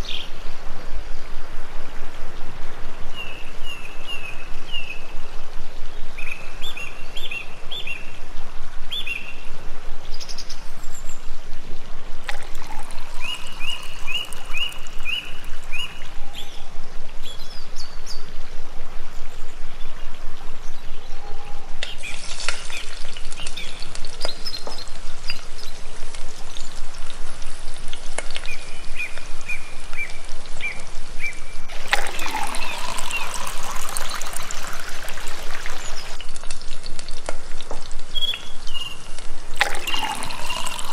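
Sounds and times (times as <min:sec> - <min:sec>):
flowing water: 0:00.0 - 0:19.8, 0:21.8 - 0:40.9
water poured into metal pot: 0:12.2 - 0:16.2, 0:21.9 - 0:25.3, 0:31.7 - 0:38.0, 0:39.6 - 0:40.9
small birds chirping: 0:12.4 - 0:18.3, 0:19.2 - 0:36.2, 0:38.1 - 0:40.9.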